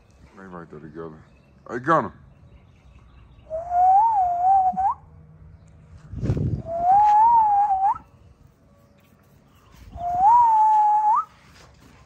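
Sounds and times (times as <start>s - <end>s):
person whistling: 3.5s - 5.0s, 6.7s - 8.0s, 10.0s - 11.4s.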